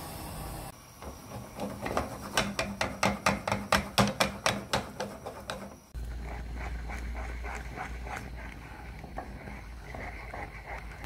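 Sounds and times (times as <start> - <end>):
saucepan knocking and clicking: 1.8 - 5.6.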